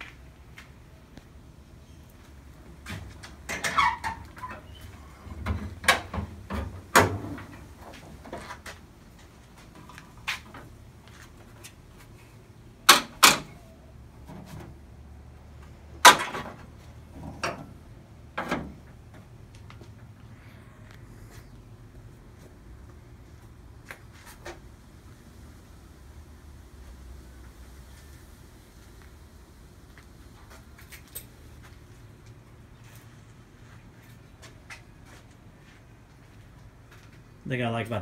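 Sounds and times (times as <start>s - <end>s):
car hood clanking open: 12.9s - 13.6s, 16.0s - 17.7s.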